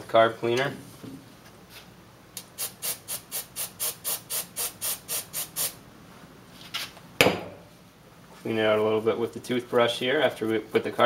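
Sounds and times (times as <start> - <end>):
aerosol spray bursts: 2.5 - 5.8.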